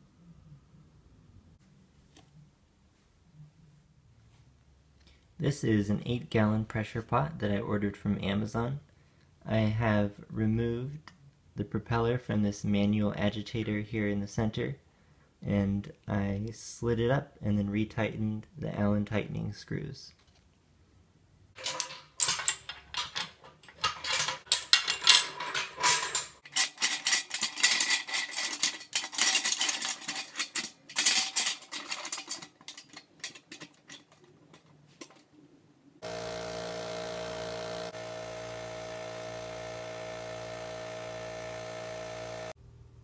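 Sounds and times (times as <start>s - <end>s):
metal clamps clinking: 21.6s - 35.2s
air compressor humming: 36.0s - 42.6s.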